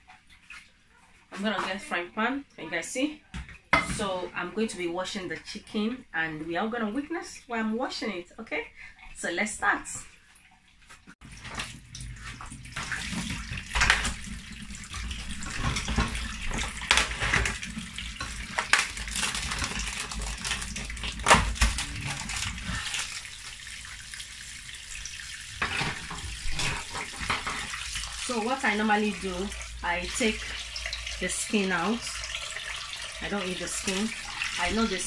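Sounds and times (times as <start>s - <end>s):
tap water running into sink: 11.2s - 35.0s.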